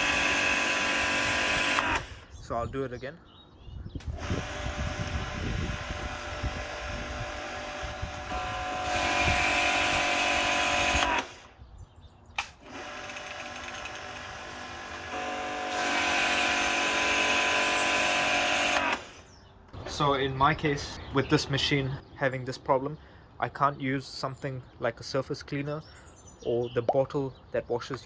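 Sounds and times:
pressure washer running: 0:00.0 - 0:02.2, 0:04.2 - 0:11.5, 0:12.6 - 0:19.3.

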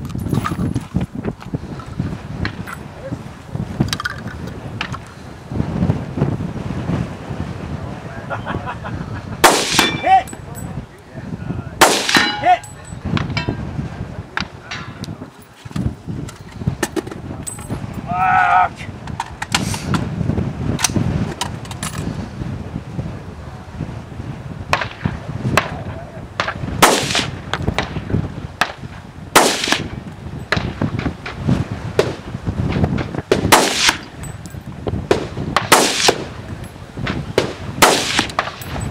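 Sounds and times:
rifle shots: 0:09.4 - 0:10.2, 0:11.8 - 0:12.6, 0:26.4 - 0:28.0, 0:29.4 - 0:30.8, 0:33.0 - 0:34.2, 0:35.1 - 0:36.4, 0:37.3 - 0:38.8
gunshots with echo: 0:09.4 - 0:10.3, 0:11.8 - 0:12.7, 0:26.4 - 0:28.0, 0:29.4 - 0:30.8, 0:33.3 - 0:34.2, 0:35.1 - 0:36.4, 0:37.3 - 0:38.7
distant steel target ringing: 0:09.5 - 0:10.5, 0:11.8 - 0:13.6.

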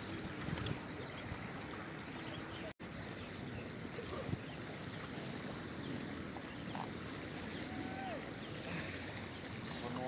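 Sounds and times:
fast-flowing river rushing: 0:03.8 - 0:10.0.

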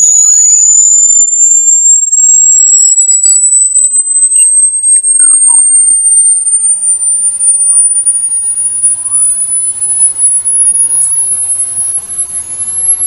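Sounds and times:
faint sweeping tones: 0:00.0 - 0:13.0
high-pitched rising electronic tone: 0:00.0 - 0:13.0.

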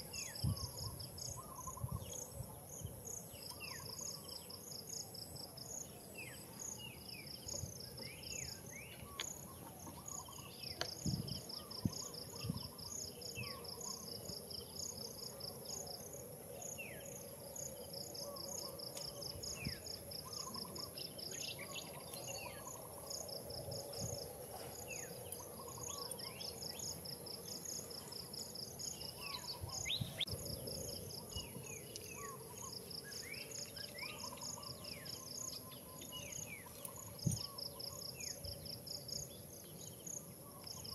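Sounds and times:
insect drone: 0:00.0 - 0:40.9
bird chirps: 0:16.6 - 0:40.9.

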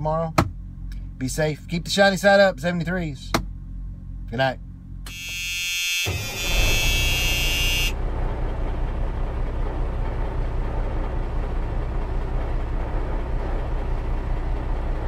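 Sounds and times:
heavy vehicle engine rumble: 0:00.0 - 0:05.5, 0:06.1 - 0:15.0
high buzzing tone: 0:05.1 - 0:08.0.

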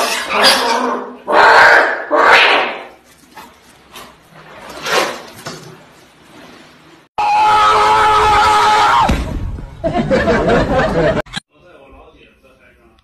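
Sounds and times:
loud screaming cry: 0:07.2 - 0:09.2.

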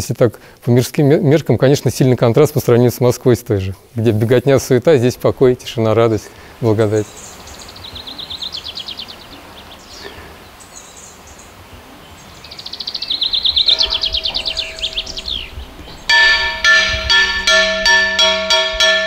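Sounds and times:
small bird singing trills: 0:06.9 - 0:17.5
church bells ringing: 0:13.6 - 0:19.0.

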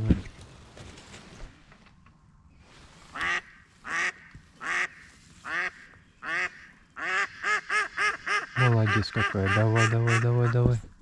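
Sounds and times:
duck quacking: 0:03.2 - 0:10.6.

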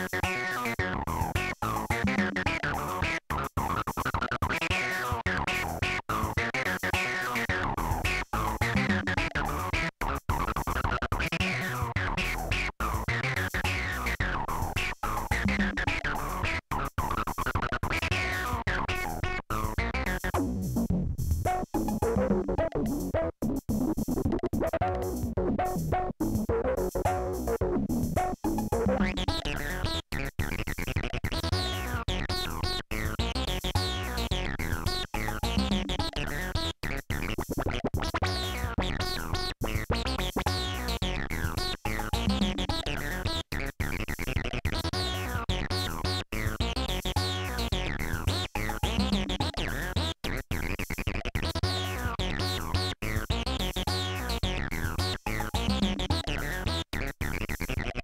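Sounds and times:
analogue synthesizer pattern: 0:21.5 - 0:23.3, 0:24.6 - 0:37.3, 0:38.0 - 0:44.0, 0:44.8 - 0:50.1, 0:51.3 - 0:58.0.

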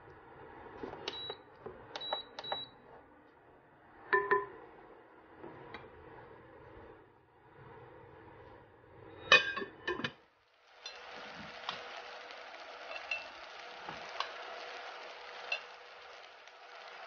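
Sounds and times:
paella sizzling in pot: 0:10.4 - 0:17.0.

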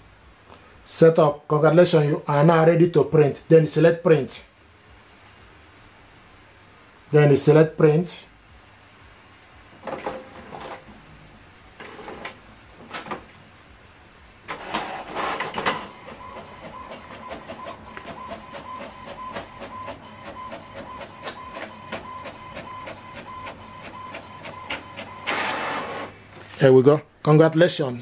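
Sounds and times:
printer whine with rapid ticks: 0:14.5 - 0:26.1.

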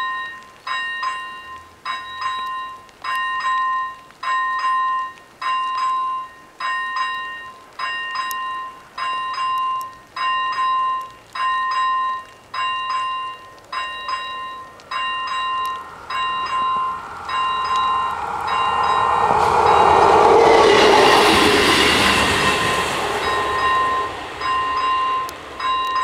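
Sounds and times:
level crossing bells ringing: 0:10.4 - 0:19.0, 0:23.1 - 0:26.0
approaching train rushing: 0:13.8 - 0:26.0.

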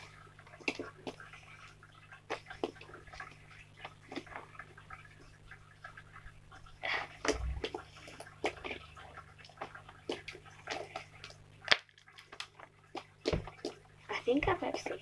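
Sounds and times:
slime squishing: 0:00.0 - 0:15.0.

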